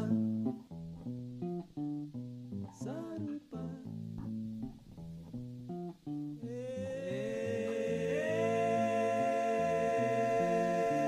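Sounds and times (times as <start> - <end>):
plucked guitar-like notes: 0.0 - 9.3
long held tones: 6.4 - 11.0.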